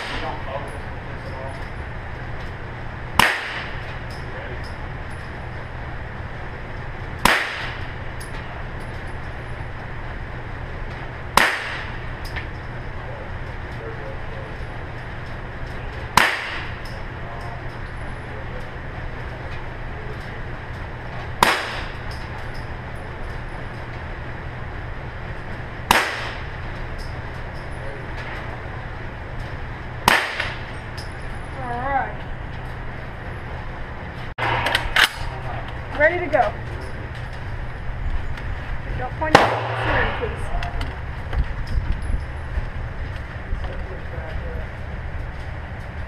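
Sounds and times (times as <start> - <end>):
steady low hum: 0.0 - 46.0
handgun shot: 3.2 - 3.8, 7.2 - 7.8, 11.4 - 11.9, 16.2 - 16.8, 21.4 - 21.9, 25.9 - 26.4, 30.1 - 30.6, 39.3 - 40.2.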